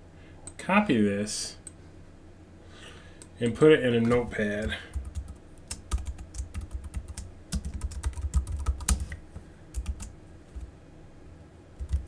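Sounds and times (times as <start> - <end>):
computer keyboard typing: 4.0 - 10.7, 11.8 - 12.0.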